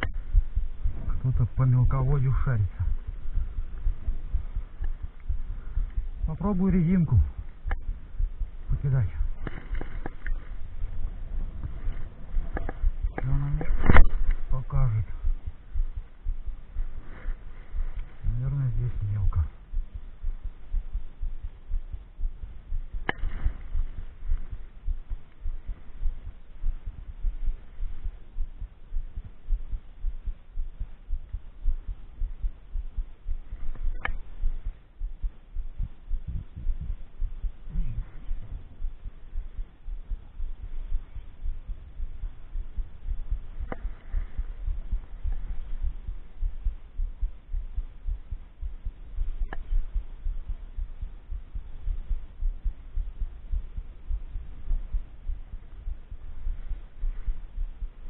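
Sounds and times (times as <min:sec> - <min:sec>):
wind buffeting microphone: 0:00.0 - 0:29.3, 0:32.7 - 0:47.8
sharp clicks: 0:07.4 - 0:07.9, 0:12.5 - 0:14.5, 0:33.7 - 0:34.4.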